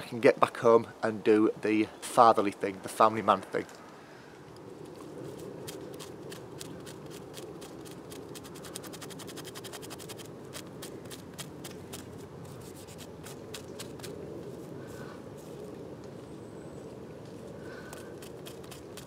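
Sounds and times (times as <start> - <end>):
knife scraping bark: 5.0 - 15.6, 17.9 - 19.0.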